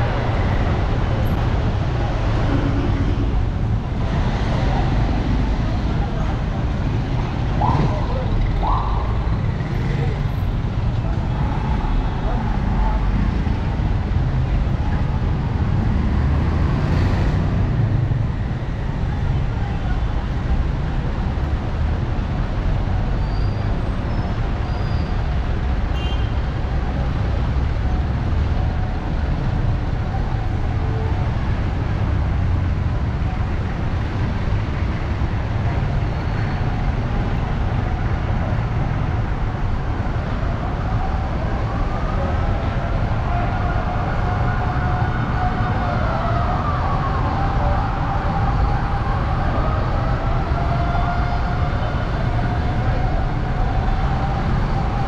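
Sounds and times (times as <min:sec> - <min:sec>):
heavy road traffic rumble: 0:00.0 - 0:55.0
siren wailing: 0:40.6 - 0:55.0.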